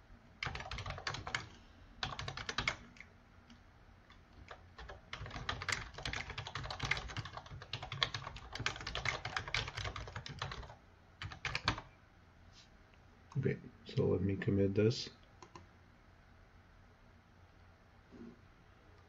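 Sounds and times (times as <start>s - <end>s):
typing on a keyboard: 0.4s - 3.1s, 4.4s - 11.9s, 15.4s - 15.6s.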